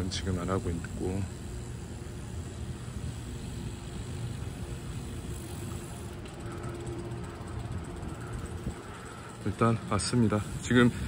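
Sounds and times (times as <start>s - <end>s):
bicycle tyres rolling on concrete: 0.0s - 11.0s.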